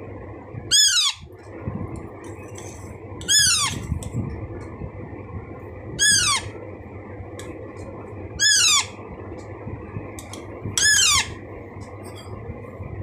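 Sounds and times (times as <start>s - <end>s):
parakeet chick calling: 0.7s - 1.3s, 3.2s - 3.8s, 6.0s - 6.5s, 8.4s - 9.0s, 10.8s - 11.4s.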